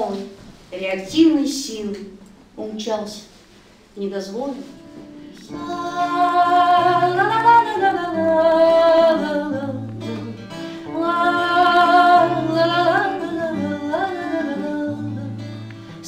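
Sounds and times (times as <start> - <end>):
acoustic guitar: 0.0 - 16.0
woman singing: 5.4 - 15.6.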